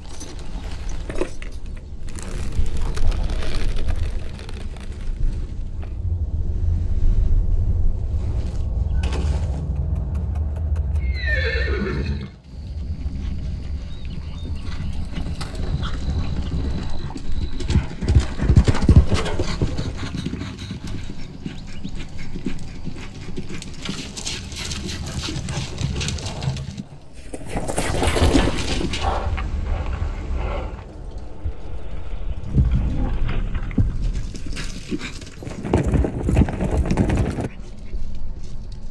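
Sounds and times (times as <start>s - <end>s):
hooves pounding on dirt: 8.6s - 38.9s
horse whinnying: 11.0s - 12.4s.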